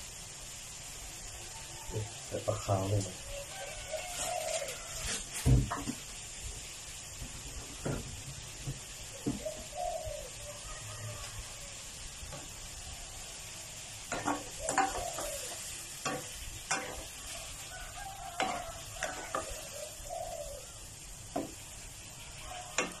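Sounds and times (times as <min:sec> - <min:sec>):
soft sizzle: 0:00.0 - 0:23.0
spatula scraping a wok: 0:03.5 - 0:06.1, 0:13.8 - 0:20.1, 0:21.1 - 0:23.0
bird calling: 0:09.1 - 0:11.2, 0:14.1 - 0:23.0.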